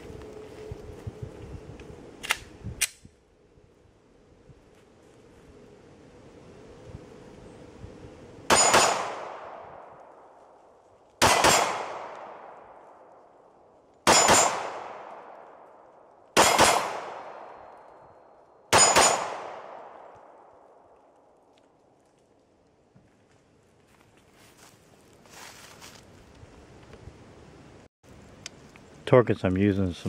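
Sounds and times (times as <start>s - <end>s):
pistol shots: 8.5s - 9.8s, 11.2s - 12.8s, 14.0s - 15.6s, 16.4s - 17.8s, 18.7s - 20.5s.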